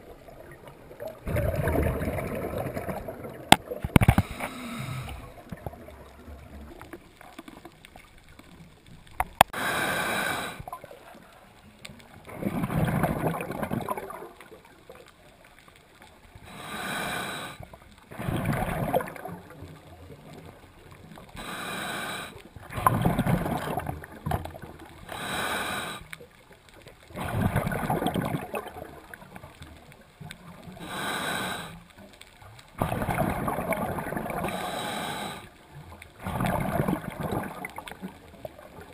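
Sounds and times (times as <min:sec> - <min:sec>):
rush of exhaled bubbles: 0:00.0 - 0:07.7, 0:12.2 - 0:14.6, 0:16.4 - 0:20.6, 0:21.3 - 0:26.1, 0:27.1 - 0:29.5, 0:32.8 - 0:38.9
regulator hiss on inhale: 0:04.1 - 0:05.4, 0:09.5 - 0:10.7, 0:16.4 - 0:17.8, 0:21.4 - 0:22.5, 0:25.0 - 0:26.2, 0:30.7 - 0:32.0, 0:34.4 - 0:35.6.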